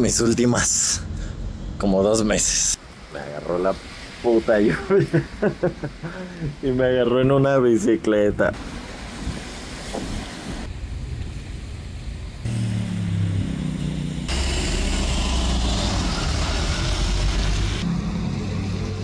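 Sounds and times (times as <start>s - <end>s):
steady rushing traffic noise: 0.0s - 4.3s, 8.5s - 19.0s
car passing on wet street: 2.8s - 6.6s, 8.5s - 19.0s
vehicle engine running: 12.5s - 17.9s.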